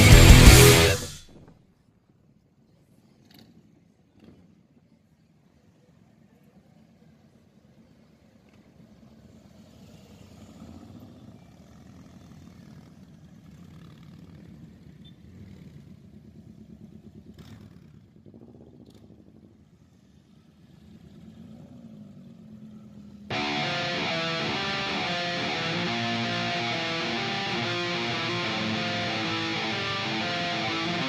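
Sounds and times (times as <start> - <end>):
motorcycles riding past: 9.0 - 19.0, 19.7 - 23.5.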